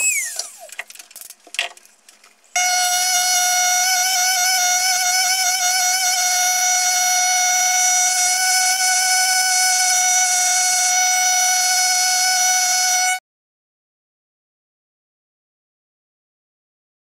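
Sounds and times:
scribe tool high-pitched whine: 2.6s - 13.2s.

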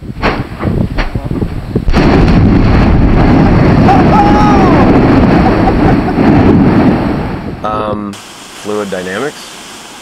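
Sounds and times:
volcanic blast: 0.0s - 7.8s
roar of erupting vent: 1.9s - 7.6s.

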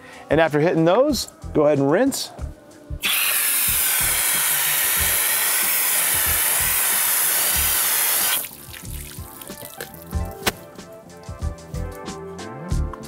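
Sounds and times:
hose spraying water on metal: 3.0s - 10.0s.

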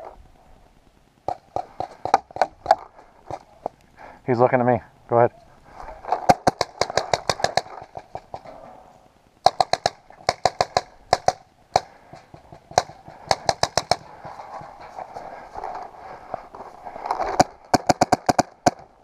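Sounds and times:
paintball markers firing: 6.2s - 8.4s, 9.4s - 14.7s, 17.2s - 18.9s.

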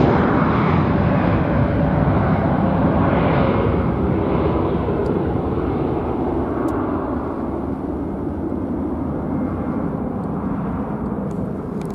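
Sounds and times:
jet engines rumbling: 0.0s - 11.9s.

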